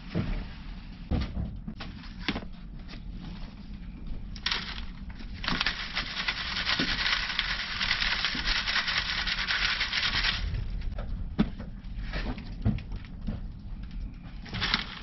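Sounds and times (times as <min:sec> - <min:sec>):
compost rustling on wire mesh screen: 0:04.4 - 0:10.5.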